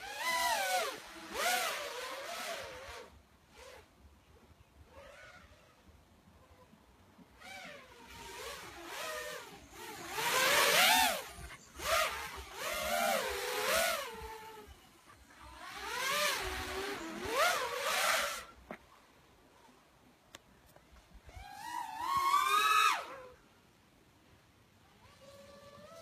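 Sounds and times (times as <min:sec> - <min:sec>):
drone motors whining: 0:00.0 - 0:03.8, 0:06.4 - 0:18.6, 0:21.2 - 0:23.4.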